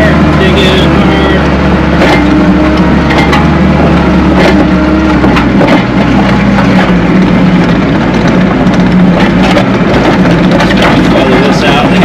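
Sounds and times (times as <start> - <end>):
skid steer engine under load: 0.0 - 12.0
sharp clicks and knocks: 2.0 - 3.6, 4.4 - 12.0.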